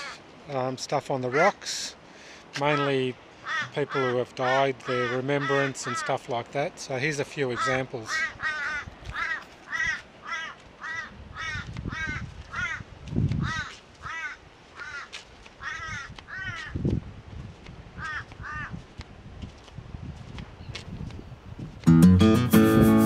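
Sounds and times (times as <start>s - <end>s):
crow cawing: 0.0s - 0.2s, 2.8s - 6.2s, 7.5s - 16.8s, 18.0s - 18.8s.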